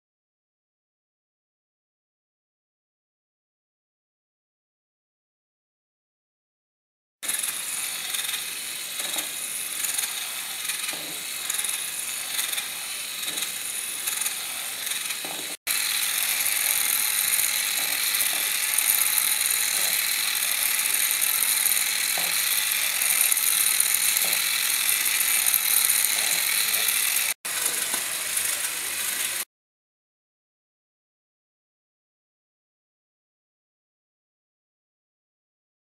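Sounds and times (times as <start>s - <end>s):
plastic gears rattling: 7.2s - 29.4s
electric motors whirring: 7.2s - 29.5s.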